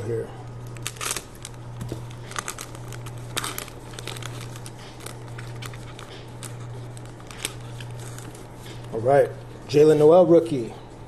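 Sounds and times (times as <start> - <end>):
foil wrapper crinkling and tearing: 0.7 - 9.0.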